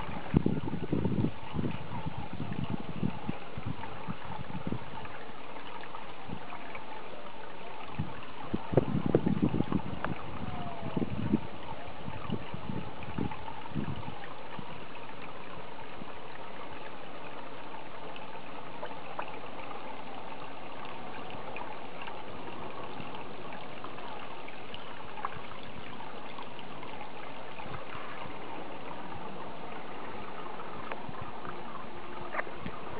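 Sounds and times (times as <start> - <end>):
water trickling in pond: 0.0 - 32.9.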